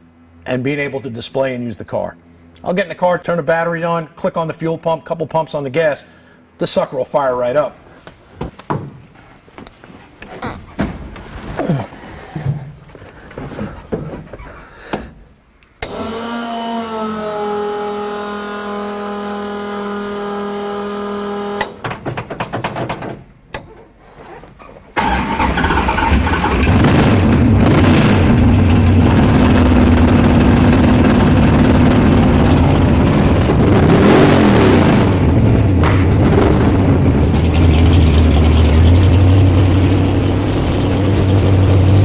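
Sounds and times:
electric fuel pump whining: 15.8s - 21.8s
vee eight engine running loud: 25.4s - 42.0s.

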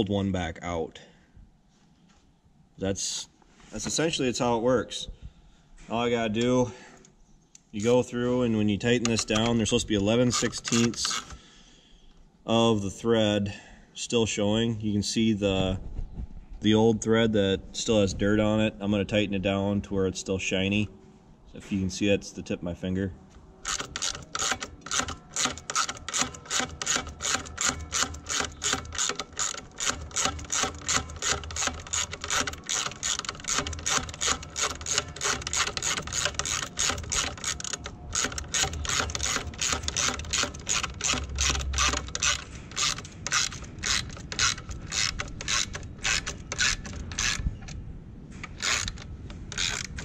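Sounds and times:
socket ratchet clicking: 9.0s - 11.4s, 23.6s - 47.8s, 48.4s - 50.0s.

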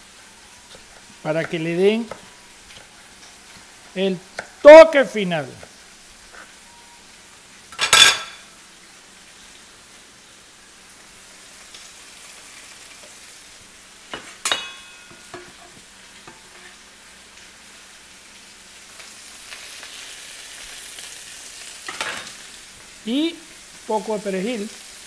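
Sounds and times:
rice sizzling in a pan: 0.0s - 25.0s
utensil clattering on pan: 14.1s - 15.8s.

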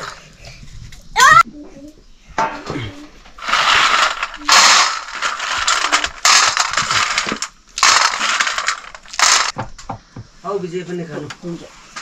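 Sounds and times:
nuts rattling on steel plate: 3.4s - 9.6s.

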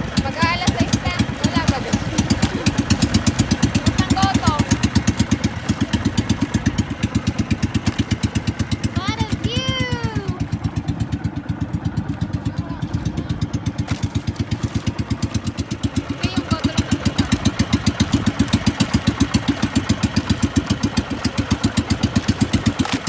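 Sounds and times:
boat engine pulsing: 0.0s - 23.0s.

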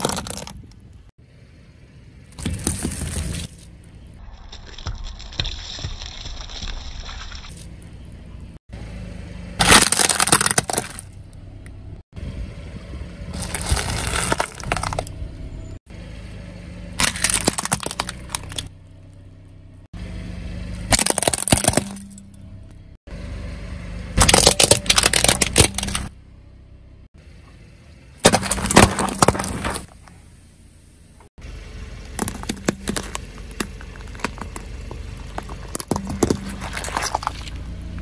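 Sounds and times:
tyre crushing plastic objects: 0.0s - 0.6s, 9.6s - 11.1s, 13.4s - 15.1s, 17.0s - 18.7s, 20.9s - 22.1s, 24.2s - 26.1s, 28.2s - 30.0s, 32.1s - 37.6s.

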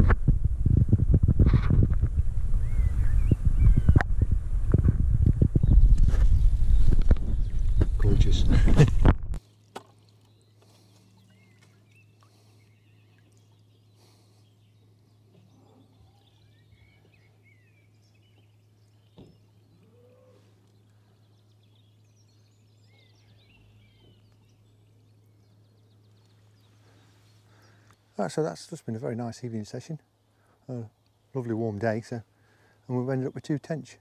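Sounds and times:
low hum: 0.0s - 9.4s
birds chirping and whistling: 2.5s - 4.3s, 5.6s - 8.8s, 10.3s - 20.3s, 21.0s - 27.9s.

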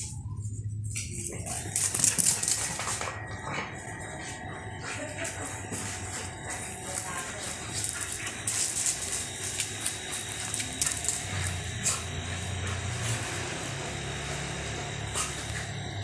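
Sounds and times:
dogs scuffling on concrete: 0.0s - 15.8s.

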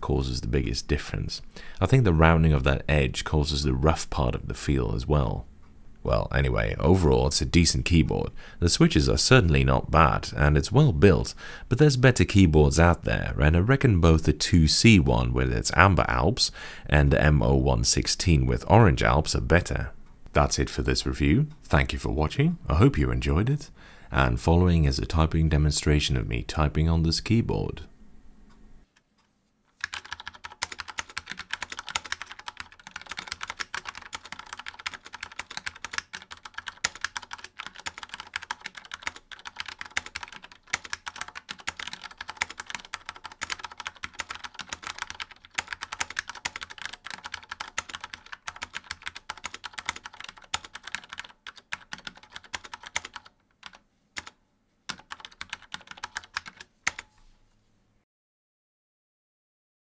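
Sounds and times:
fast typing on keyboard: 29.8s - 57.1s.

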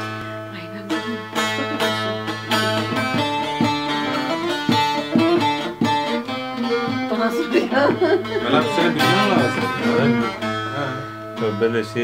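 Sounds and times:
long-necked lute plucked and strummed: 0.0s - 12.0s.

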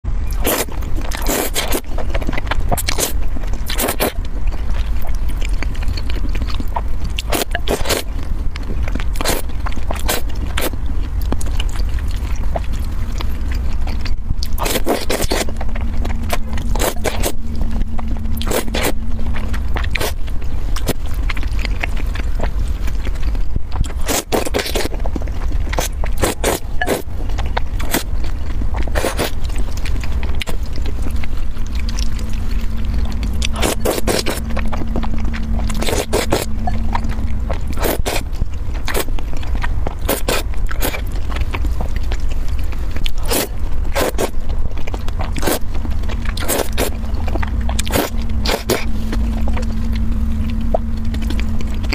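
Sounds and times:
steady low rumble: 0.0s - 51.9s
wet noodle slurps: 0.4s - 4.2s, 13.2s - 17.4s, 25.8s - 27.1s, 28.9s - 30.8s, 33.2s - 41.1s, 43.0s - 44.4s, 45.2s - 49.3s.

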